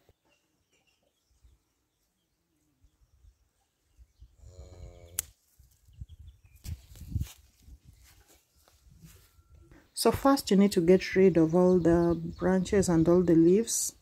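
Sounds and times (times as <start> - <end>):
pruning shears snipping branch: 5.2 - 5.4
rustling and handling noise: 6.6 - 9.5.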